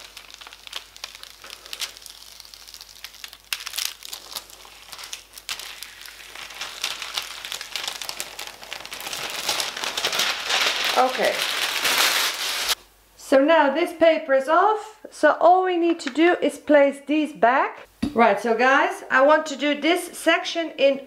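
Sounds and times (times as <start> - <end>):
plastic film crinkling: 0.0 - 12.8.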